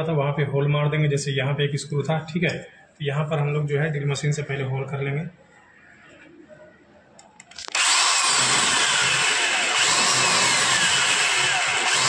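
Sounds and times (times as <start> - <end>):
electric drill boring through metal: 7.7 - 12.0.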